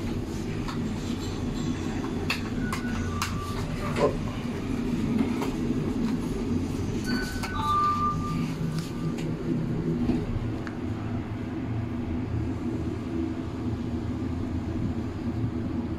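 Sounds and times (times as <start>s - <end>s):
steady low rumble: 0.0s - 15.9s
short beeps: 7.0s - 9.2s.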